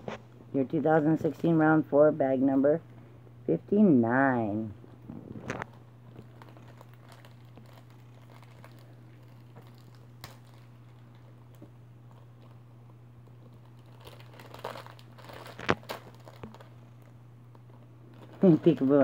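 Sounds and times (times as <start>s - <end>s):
steady low hum: 0.0s - 19.0s
plastic foil bag crinkling: 4.8s - 19.0s.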